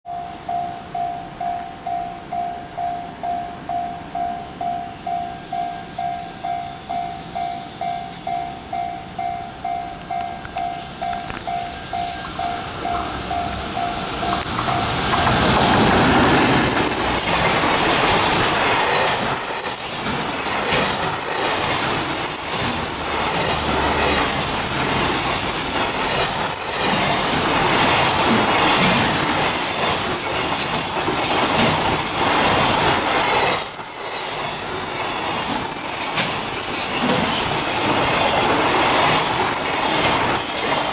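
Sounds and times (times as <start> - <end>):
pulsing warning bell: 0.1 - 15.0
train wheels rumbling on rails: 6.4 - 40.9
wheel squeal: 16.2 - 20.7.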